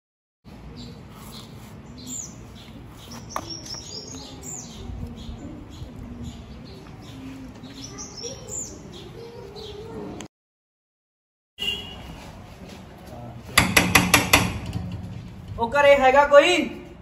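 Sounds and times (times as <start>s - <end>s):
small birds chirping: 0.5s - 10.3s.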